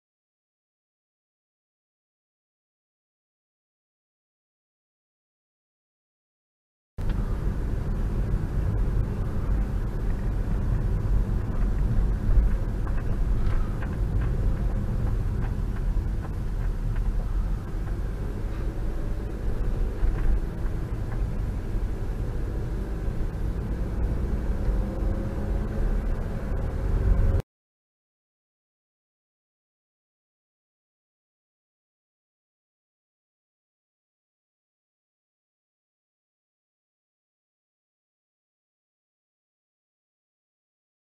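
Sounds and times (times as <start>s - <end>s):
car engine and tyres rumbling: 7.0s - 27.4s.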